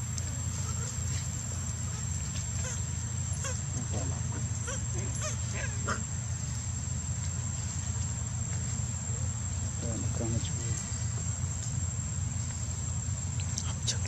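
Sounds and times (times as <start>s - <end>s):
low background rumble: 0.0s - 14.0s
baby monkey squeaking: 3.4s - 6.0s.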